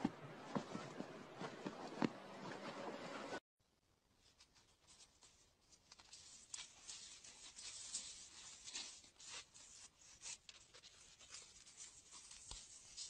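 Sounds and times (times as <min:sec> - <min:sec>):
scratchy rustling and crackling: 0:04.2 - 0:13.0.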